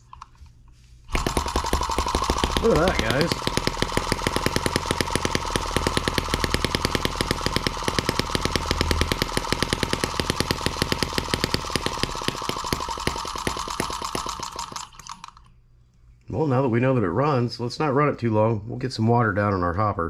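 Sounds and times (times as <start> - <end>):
model engine firing pops: 1.1 - 15.4.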